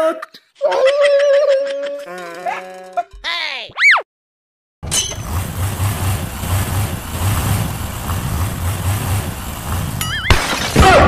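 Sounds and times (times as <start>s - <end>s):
vehicle engine running: 4.8s - 10.4s.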